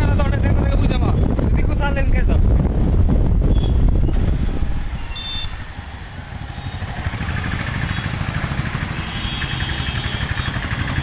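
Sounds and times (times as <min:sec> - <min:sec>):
motorcycle engine running: 0:05.2 - 0:11.0.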